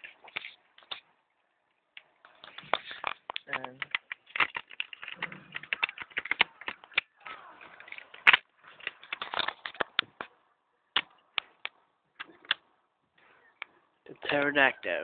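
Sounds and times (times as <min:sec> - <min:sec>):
plastic toy pieces clicking: 0:02.4 - 0:10.3.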